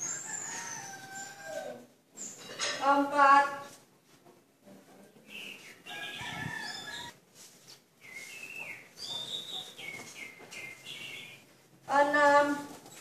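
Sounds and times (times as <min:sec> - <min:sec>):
rooster crowing: 0:00.0 - 0:01.9, 0:05.9 - 0:07.2.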